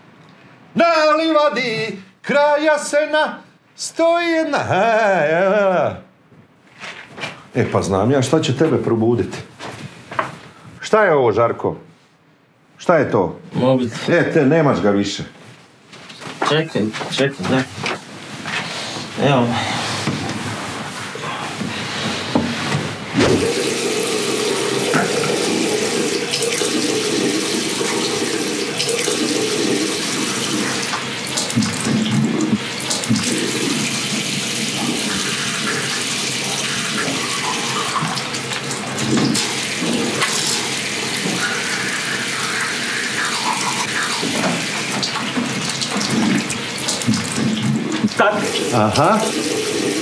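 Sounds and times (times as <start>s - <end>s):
tap running into sink: 23.2s - 33.8s.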